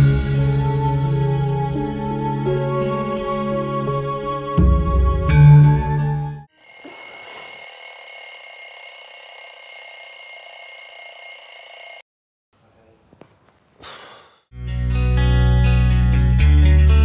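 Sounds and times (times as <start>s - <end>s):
alarm clock bells ringing: 6.6s - 12.0s.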